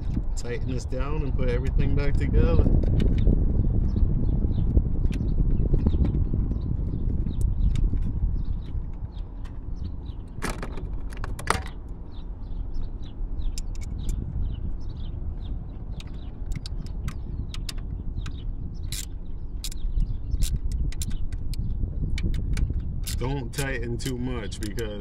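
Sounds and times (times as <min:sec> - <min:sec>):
steady low rumble: 0:00.0 - 0:25.0
screwdriver clicking and scraping: 0:22.3 - 0:23.7.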